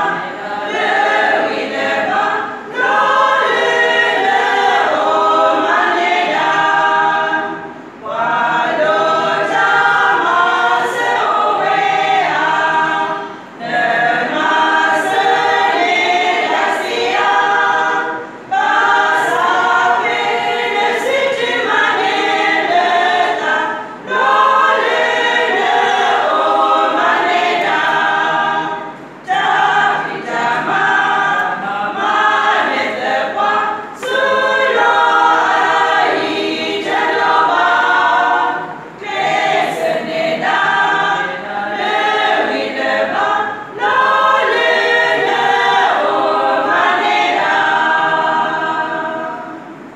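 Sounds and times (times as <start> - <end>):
women's choir singing a cappella: 0.0 - 49.9.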